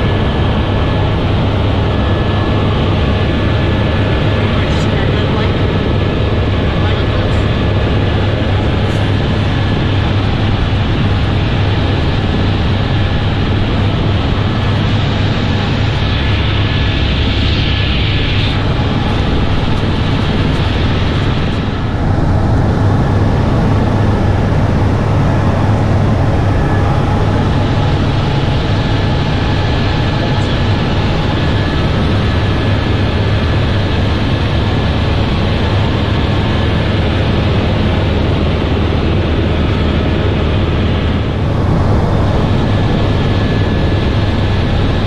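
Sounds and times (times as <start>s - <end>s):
helicopter engine and rotor drone: 0.0s - 45.0s
thin high whine: 13.8s - 45.0s.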